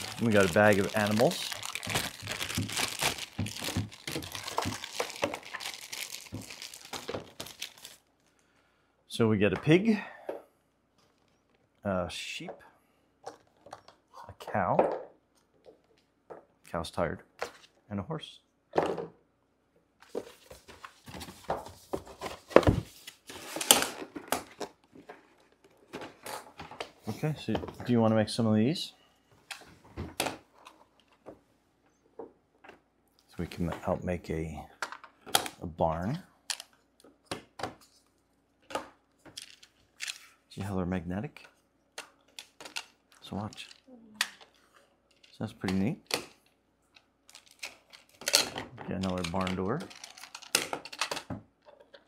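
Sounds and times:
plastic bag crinkling: 0:00.0 - 0:08.4, 0:47.3 - 0:48.4, 0:49.1 - 0:51.1.

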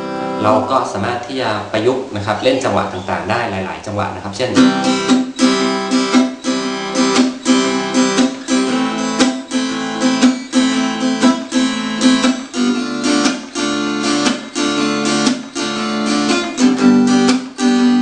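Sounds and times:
muted acoustic guitar strumming: 0:04.4 - 0:18.0.

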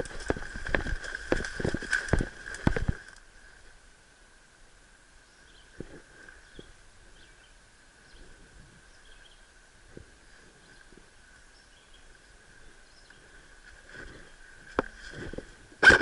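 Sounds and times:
footsteps through undergrowth: 0:00.0 - 0:03.6, 0:13.0 - 0:15.7.

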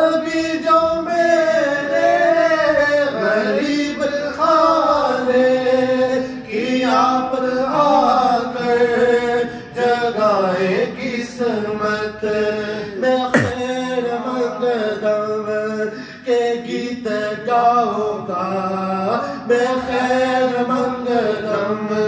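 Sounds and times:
man singing unaccompanied: 0:00.0 - 0:22.0
man breathing: 0:13.4 - 0:13.6.

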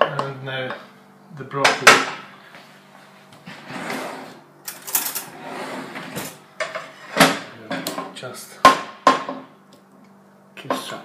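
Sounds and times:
pan scraping: 0:03.5 - 0:07.3.

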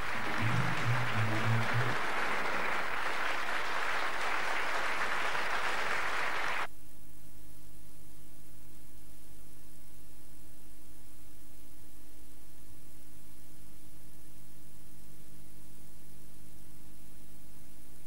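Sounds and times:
low steady hum: 0:00.0 - 0:02.9
music: 0:00.0 - 0:05.8
audience applause: 0:00.0 - 0:06.7.

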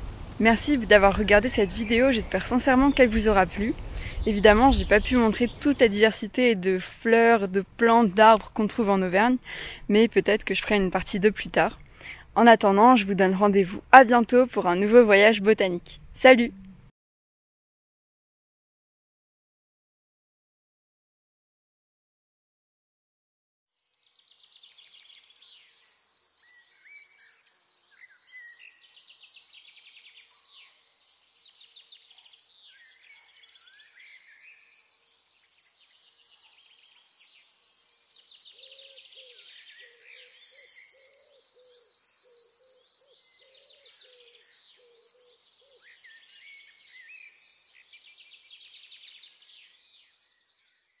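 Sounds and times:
insects chirring: 0:00.0 - 0:06.6, 0:23.7 - 0:51.0
birds chirping: 0:00.0 - 0:16.6, 0:38.1 - 0:51.0.

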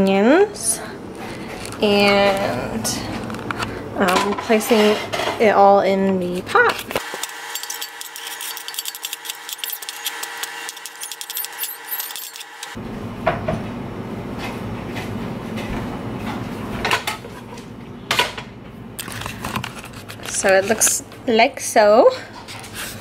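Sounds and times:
knife scraping cutting board: 0:06.7 - 0:12.8.

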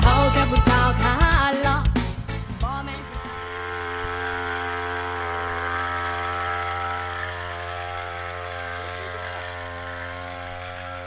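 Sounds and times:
backpack sprayer engine running: 0:00.0 - 0:11.0.

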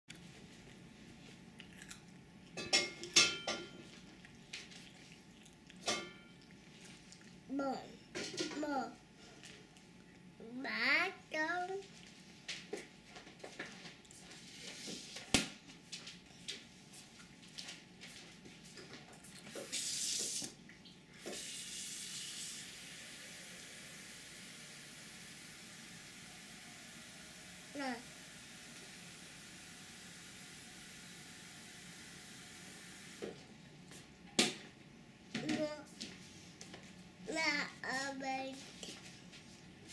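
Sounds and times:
tableware clinking: 0:02.6 - 0:03.8
tap water running: 0:19.4 - 0:33.4.

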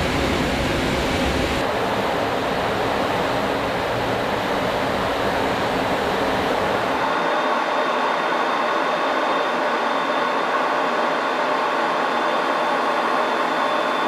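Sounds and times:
aircraft cockpit roar: 0:00.0 - 0:14.0.

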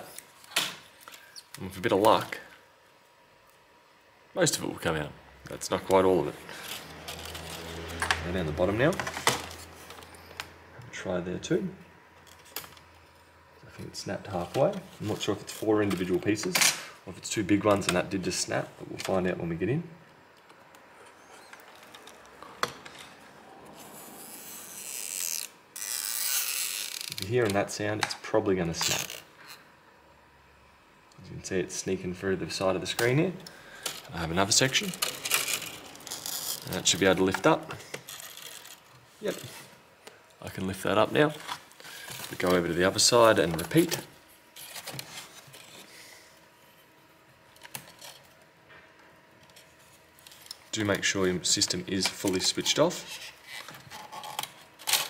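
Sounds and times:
plastic scraping against display: 0:06.5 - 0:10.5, 0:28.7 - 0:29.6, 0:33.7 - 0:39.8, 0:51.9 - 0:55.0.

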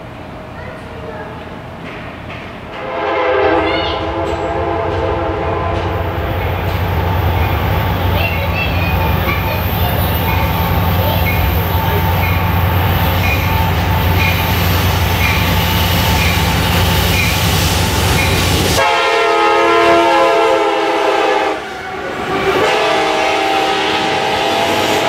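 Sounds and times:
locomotive air horn: 0:02.8 - 0:06.2, 0:18.8 - 0:25.0
locomotive engine drone: 0:04.1 - 0:25.0.

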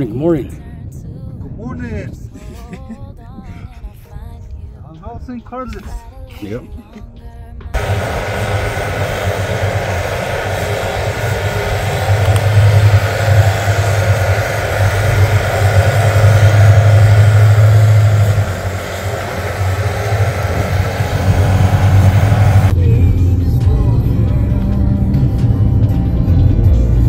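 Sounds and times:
vehicle engine droning: 0:07.8 - 0:27.0.

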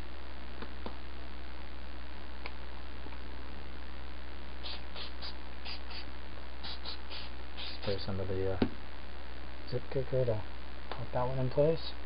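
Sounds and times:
electrical hum: 0:00.0 - 0:12.0
spray bottle hissing puffs: 0:04.6 - 0:08.0.

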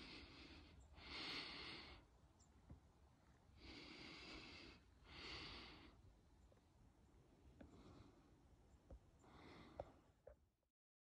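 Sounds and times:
person breathing close to microphone: 0:00.0 - 0:02.1, 0:03.6 - 0:06.0, 0:09.2 - 0:10.2.

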